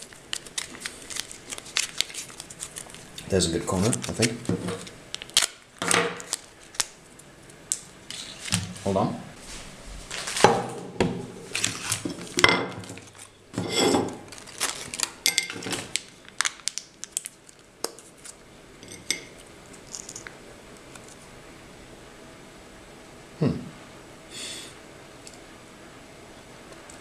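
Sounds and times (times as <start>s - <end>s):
foil pouches crinkling: 0.0s - 8.8s, 10.1s - 10.5s, 11.4s - 13.3s, 14.2s - 18.4s.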